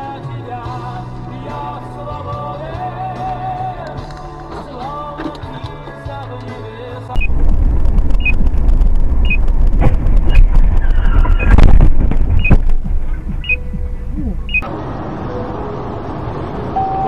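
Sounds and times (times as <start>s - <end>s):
road and wind rumble: 7.1s - 17.0s
short high beeps: 12.4s - 12.6s, 13.4s - 14.6s, 16.8s - 17.0s.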